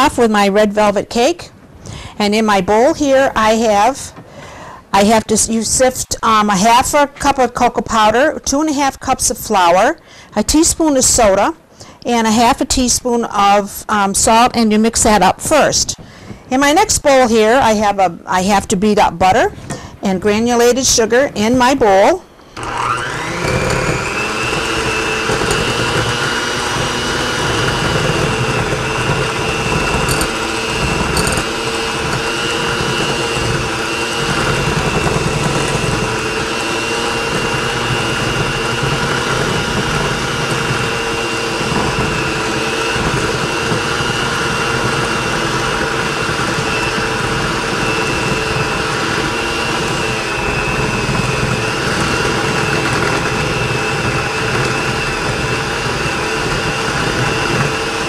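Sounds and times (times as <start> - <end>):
electric hand mixer whining: 21.4 - 58.0.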